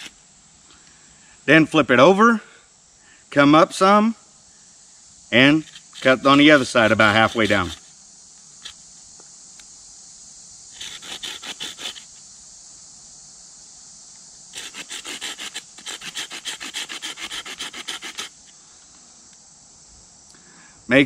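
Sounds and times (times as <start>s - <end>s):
hand saw cutting wood: 5.6s - 7.9s, 10.8s - 12.1s, 14.5s - 18.4s.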